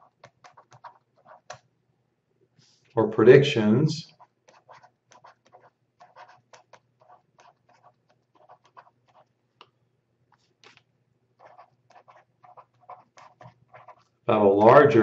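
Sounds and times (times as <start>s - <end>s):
stylus tapping and scratching: 0.0s - 1.7s, 4.1s - 9.7s, 10.3s - 14.8s.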